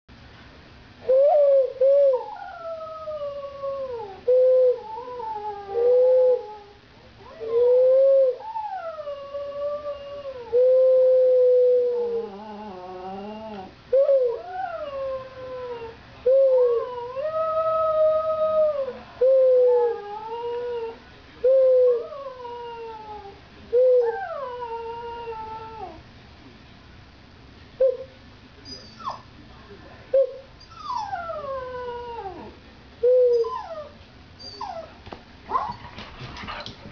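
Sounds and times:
dog howling: 0:01.2 - 0:21.0, 0:21.6 - 0:26.0, 0:30.7 - 0:32.5.

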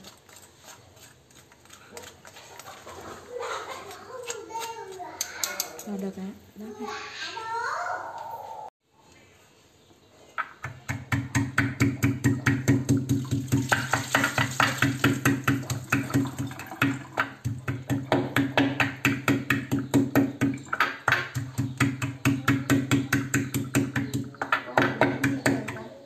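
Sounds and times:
pestle pounding in ceramic bowl: 0:10.6 - 0:25.9.

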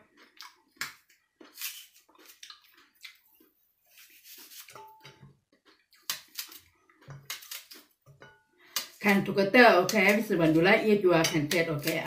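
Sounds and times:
knife cutting crisp apple: 0:00.8 - 0:02.6, 0:03.9 - 0:05.2, 0:06.0 - 0:08.0, 0:09.8 - 0:12.0.

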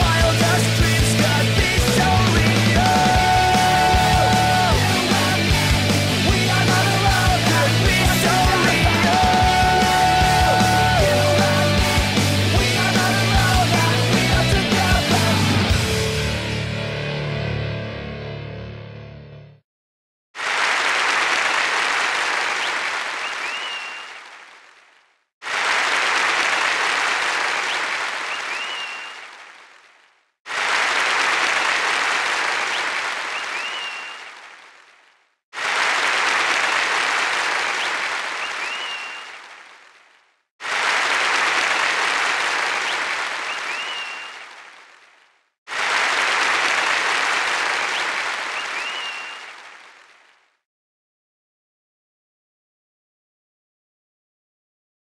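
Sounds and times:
crowd applause: 0:00.0 - 0:16.0, 0:20.4 - 0:24.8, 0:25.4 - 0:40.0, 0:40.6 - 0:50.5
whistle: 0:22.6 - 0:24.2, 0:27.7 - 0:29.2, 0:32.7 - 0:34.3, 0:37.8 - 0:39.4, 0:42.9 - 0:44.4, 0:47.9 - 0:49.5.

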